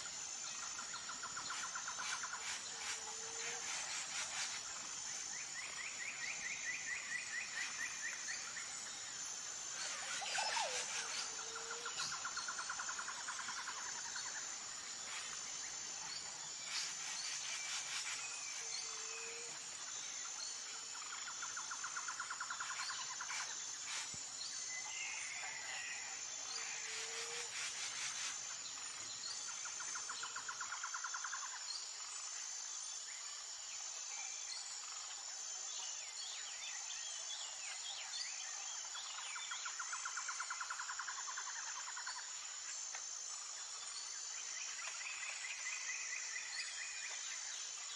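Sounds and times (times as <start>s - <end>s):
high pulsing insect chirp: 0.0s - 47.9s.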